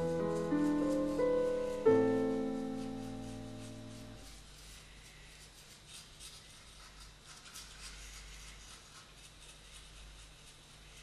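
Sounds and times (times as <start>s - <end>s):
low steady hum: 0.0s - 5.4s
brush scratching on wood: 0.0s - 11.0s.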